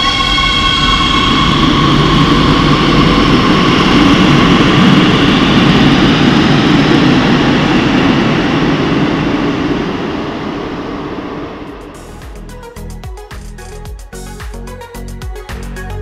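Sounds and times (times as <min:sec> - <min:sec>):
train motor whine: 0:00.0 - 0:07.0
train wheels rumbling on rail: 0:00.0 - 0:14.6.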